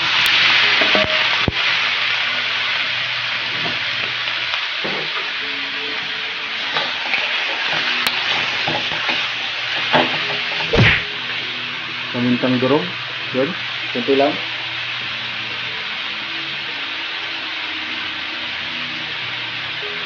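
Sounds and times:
meat sizzling in hot oil: 0.0 - 20.0.

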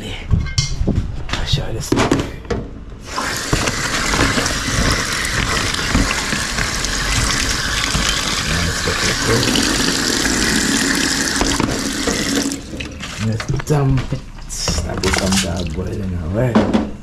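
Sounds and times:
tap water running into sink: 3.0 - 13.5, 14.7 - 16.0
potatoes rubbed and rinsed by hand: 3.0 - 16.2.

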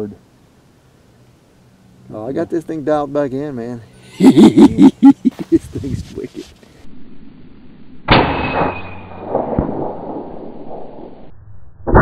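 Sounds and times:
air rifle shot with ringing decay: 8.1 - 10.9.

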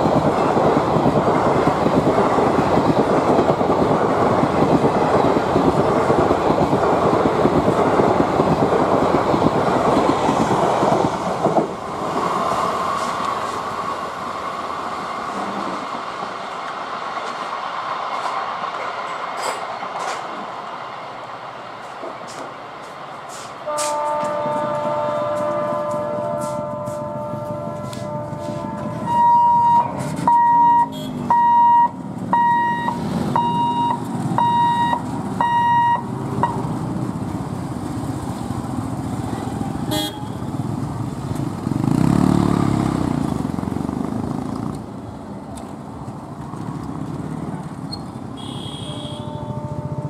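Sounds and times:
vehicles crossing railway crossing: 0.0 - 50.0
horn beeping: 23.7 - 36.6, 48.4 - 50.0
motorcycle engine passing: 41.6 - 44.6.

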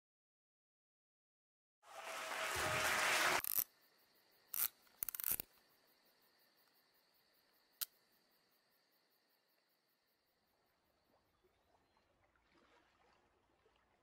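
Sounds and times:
short scratchy scrapes: 2.0 - 3.6.

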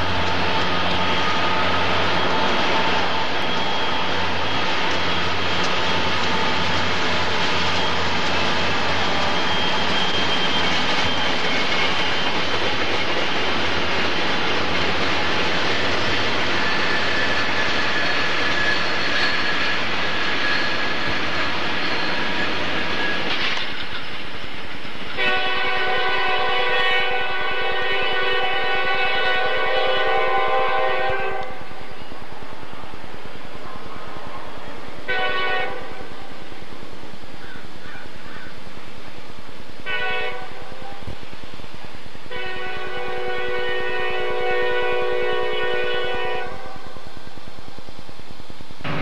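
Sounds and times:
train wheels clattering: 0.0 - 27.4
locomotive engine drone: 0.0 - 37.4, 48.6 - 49.0
wheel squeal: 1.0 - 6.8, 7.6 - 13.5, 16.0 - 24.1
train horn: 25.2 - 32.1, 35.0 - 36.4, 39.8 - 41.2, 42.3 - 47.2.

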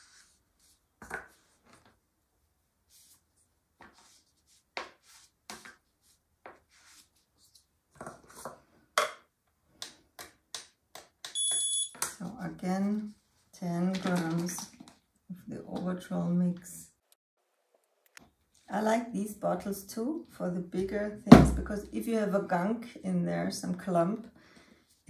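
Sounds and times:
digital scale beep: 11.4 - 12.0.

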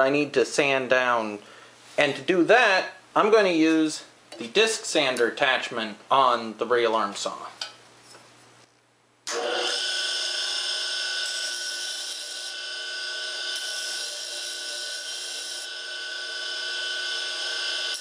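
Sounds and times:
saw motor whining: 9.3 - 18.0.

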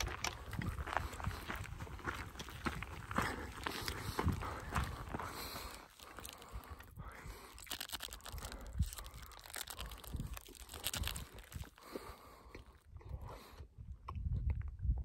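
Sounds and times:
plastic wrapper crinkling: 5.8 - 6.8, 7.4 - 11.9.

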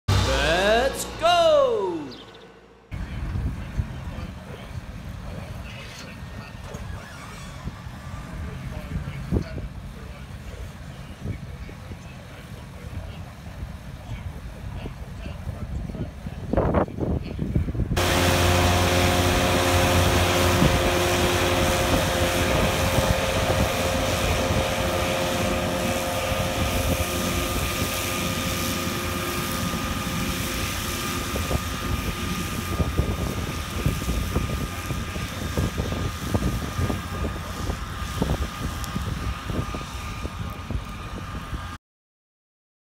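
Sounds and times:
mower cutting grass: 0.1 - 2.3, 18.0 - 41.4
tractor diesel engine running: 0.1 - 4.1, 18.0 - 41.5.

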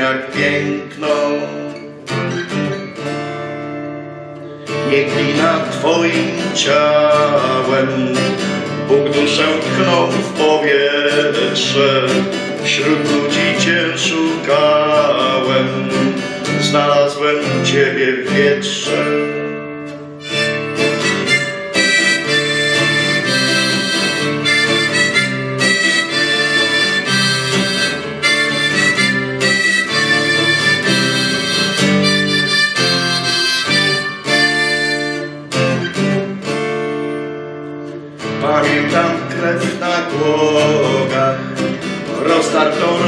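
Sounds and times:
strummed acoustic guitar: 0.0 - 43.0
harmonica melody: 19.5 - 43.0.

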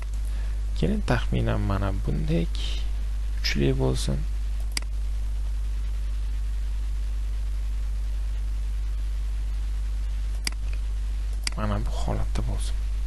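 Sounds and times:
low electrical hum: 0.0 - 13.0
click: 4.6 - 4.9, 10.4 - 11.6.

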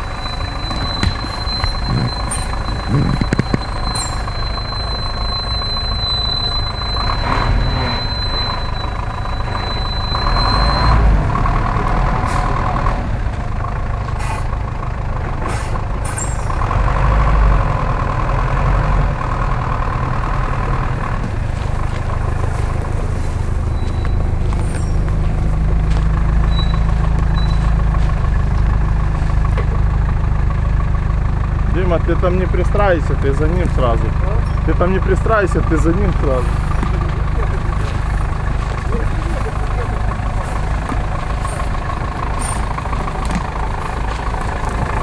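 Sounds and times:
truck engines crawling: 0.0 - 45.0.

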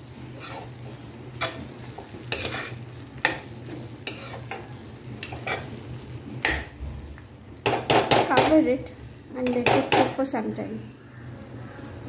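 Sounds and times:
faint sizzle: 0.0 - 12.0
spatula scraping a pan: 0.2 - 6.6.

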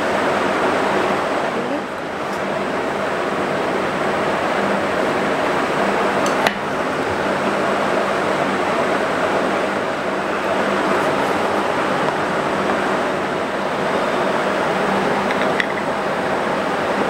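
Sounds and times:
steady rushing noise: 0.0 - 17.0.

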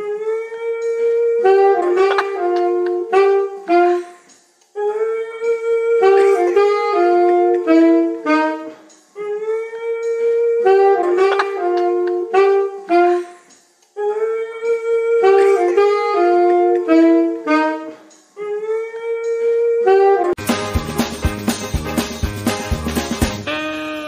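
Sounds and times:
saxophone playing a phrase: 0.7 - 4.1, 4.8 - 8.8, 9.5 - 13.3, 14.0 - 18.0, 23.4 - 24.0.

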